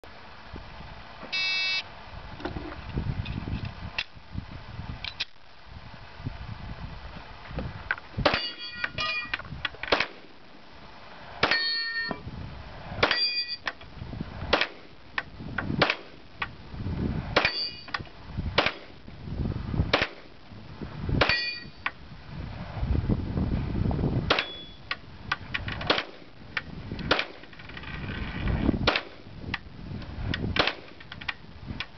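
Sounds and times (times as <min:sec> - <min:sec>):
steel plate clanging: 0:08.3 - 0:09.4, 0:11.4 - 0:12.2, 0:13.0 - 0:13.6, 0:17.4 - 0:18.0, 0:21.2 - 0:21.8
pistol shots: 0:18.6 - 0:18.9, 0:24.3 - 0:24.7.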